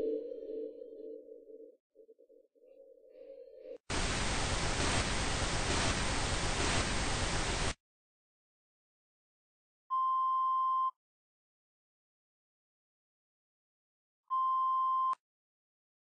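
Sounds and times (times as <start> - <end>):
loud hissing static: 3.9 - 7.8.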